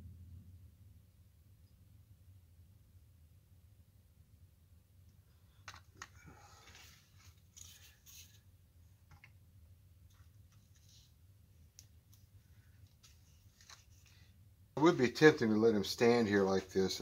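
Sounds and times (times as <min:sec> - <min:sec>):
low steady hum: 0:00.0 - 0:17.0
light clicks and rustles: 0:05.5 - 0:09.4, 0:10.1 - 0:14.3.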